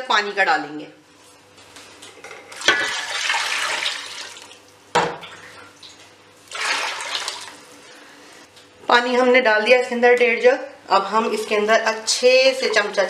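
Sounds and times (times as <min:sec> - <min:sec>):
water pouring into a pot: 0:02.6 - 0:04.6, 0:06.5 - 0:07.6.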